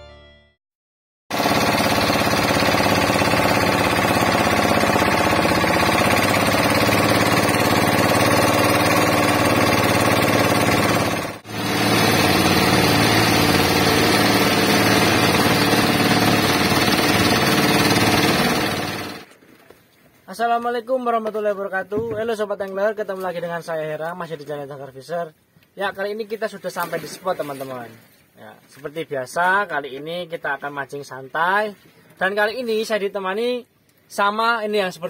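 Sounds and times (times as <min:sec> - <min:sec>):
boat engine running: 0:01.3 - 0:19.3.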